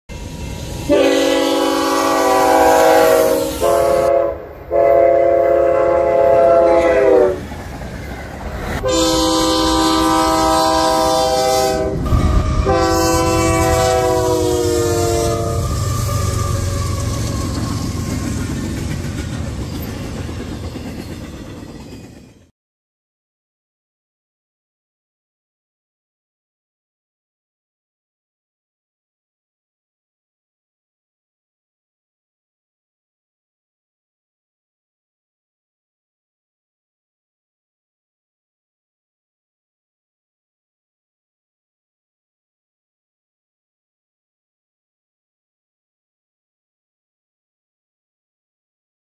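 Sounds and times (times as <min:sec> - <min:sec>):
rumble of passing train: 0:00.1 - 0:22.5
locomotive air horn blasts: 0:00.9 - 0:07.4, 0:08.8 - 0:18.2.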